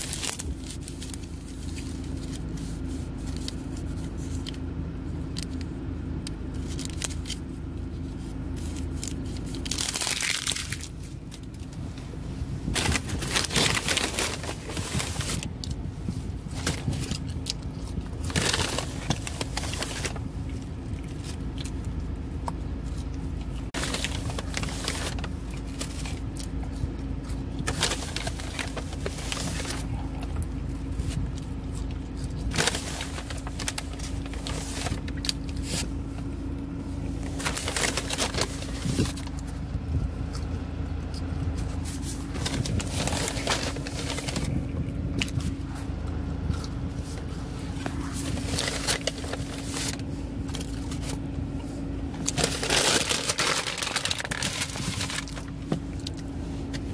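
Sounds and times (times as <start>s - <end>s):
paper bag crinkling: 0.0s - 4.6s, 8.1s - 11.5s, 12.7s - 15.6s, 16.4s - 20.3s, 23.7s - 26.3s, 27.6s - 30.3s, 32.1s - 36.0s, 37.2s - 39.5s, 41.6s - 45.8s, 47.0s - 51.2s, 52.2s - 56.2s
low hum of car: 0.0s - 56.9s.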